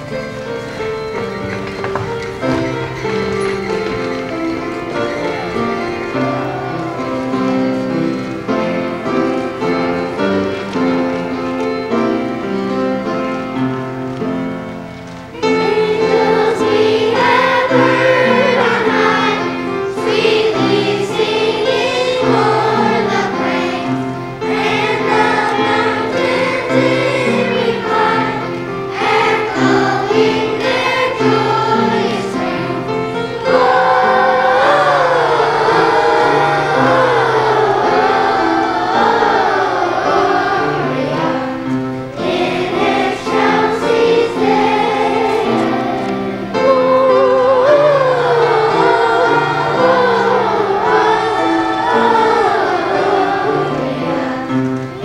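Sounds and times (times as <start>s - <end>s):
children's choir singing: 0.0s - 55.0s
instrumental accompaniment: 0.0s - 55.0s.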